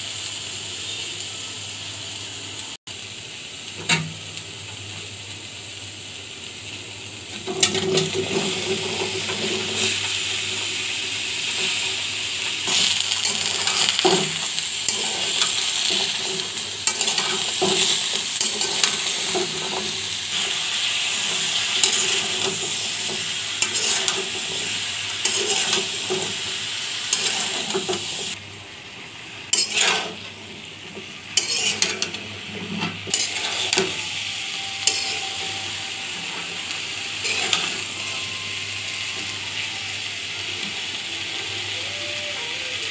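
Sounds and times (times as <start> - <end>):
vegetables hissing in a pan: 0.0 - 42.9
metal spatula scraping a pan: 7.4 - 10.2, 12.6 - 26.4, 27.1 - 28.4, 29.5 - 38.3.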